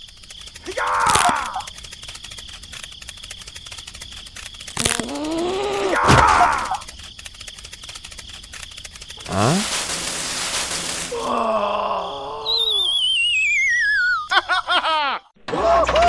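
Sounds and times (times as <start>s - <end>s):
falling wavering whistle: 12.2s - 14.3s
rising whistle with whoosh: 12.4s - 14.2s.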